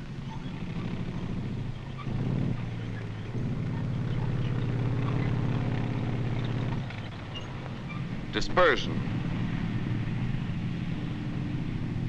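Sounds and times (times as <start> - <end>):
tank engine droning: 0.0 - 12.0.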